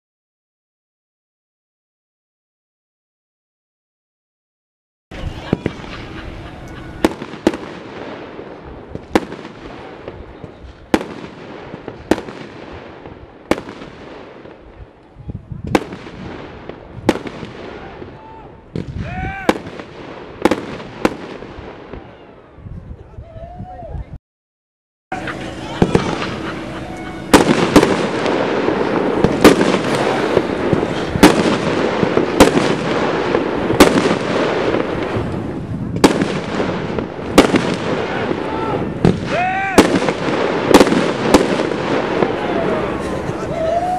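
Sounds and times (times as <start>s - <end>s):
firework bangs: 5.1s - 22.3s, 25.1s - 43.9s
steady rushing noise: 25.1s - 37.4s.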